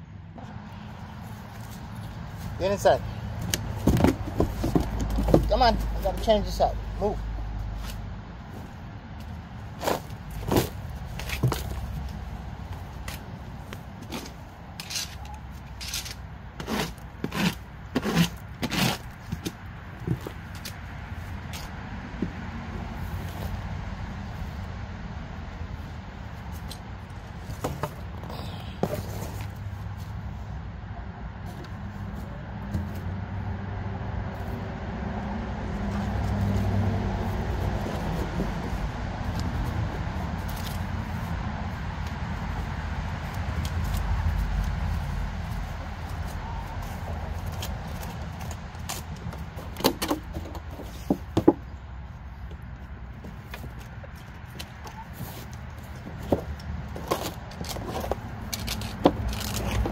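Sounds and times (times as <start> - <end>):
vehicle engine humming: 0.0 - 59.9
plastic rake scraping litter: 14.8 - 19.0.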